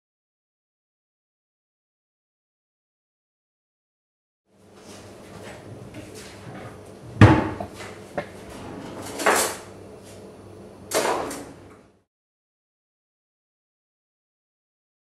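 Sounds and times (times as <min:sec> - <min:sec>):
drawer sliding: 0:06.5 - 0:09.6
cupboard door thumping shut: 0:07.2 - 0:07.7.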